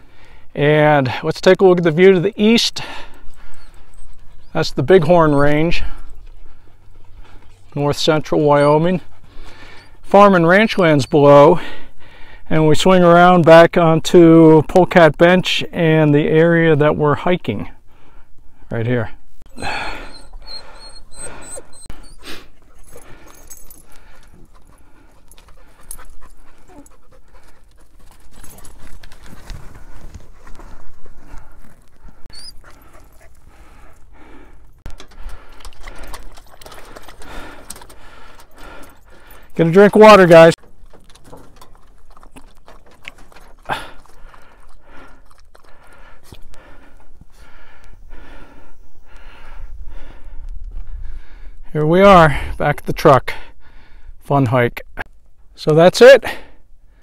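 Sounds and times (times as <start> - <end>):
dog panting hard: 2.8 - 7.7, 8.3 - 10.0, 19.6 - 39.6, 40.9 - 48.6
dog lapping water from bowl: 41.0 - 46.1.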